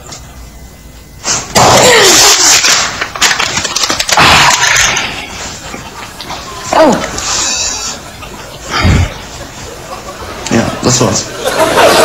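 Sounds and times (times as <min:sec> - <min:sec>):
hand crushing plastic cups: 0:01.6 - 0:05.5.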